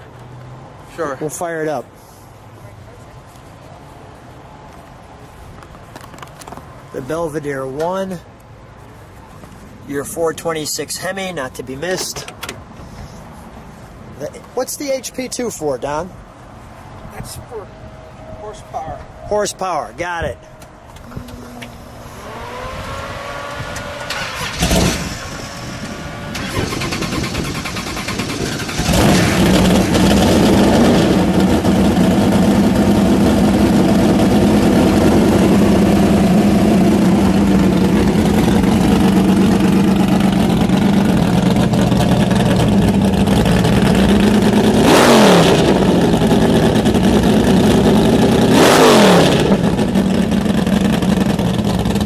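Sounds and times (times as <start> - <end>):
car engine starting and idling: 20.5 - 52.0
engine revving: 21.0 - 52.0.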